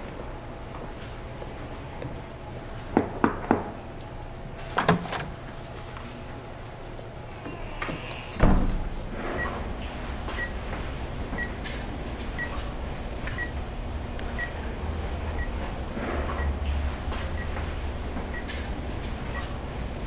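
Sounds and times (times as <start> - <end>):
loud thump: 8.4 - 9.0.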